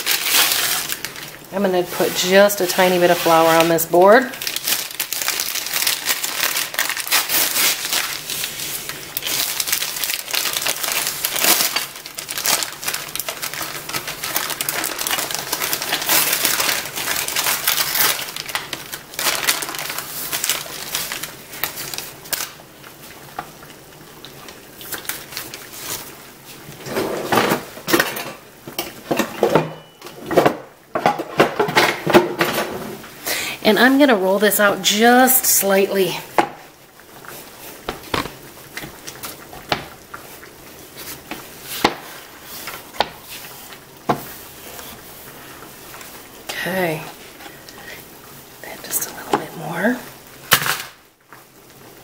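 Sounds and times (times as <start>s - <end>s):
packaging crinkling: 0.0s - 26.7s, 50.2s - 51.8s.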